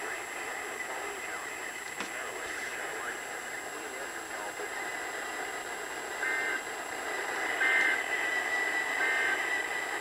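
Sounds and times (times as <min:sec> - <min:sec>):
broadcast static: 0:00.0 - 0:10.0
digital data tone bursts: 0:06.1 - 0:10.0.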